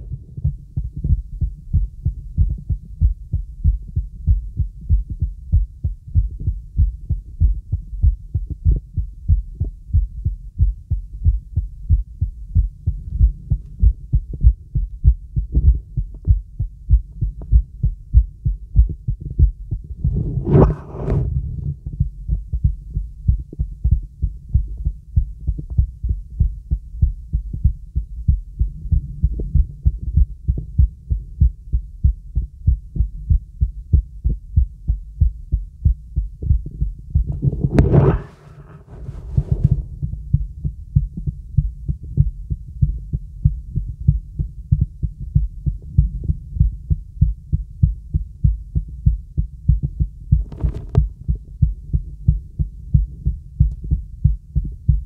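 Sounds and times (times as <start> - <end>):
heartbeat through stethoscope: 0.0 - 55.0
stethoscope scratching: 20.2 - 21.3, 37.3 - 39.8.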